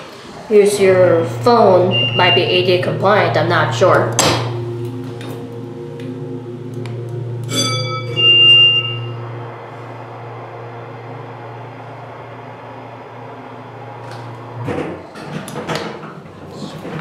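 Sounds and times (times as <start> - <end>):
steady low hum: 0.0 - 17.0
elevator alarm ringing: 0.6 - 14.7.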